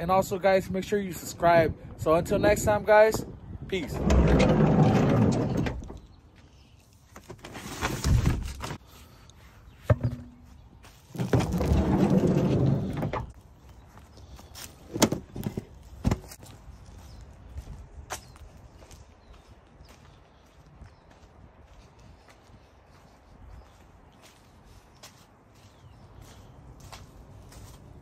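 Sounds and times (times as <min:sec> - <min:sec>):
sliding van door rolling: 0:03.9 - 0:05.9, 0:11.3 - 0:13.4.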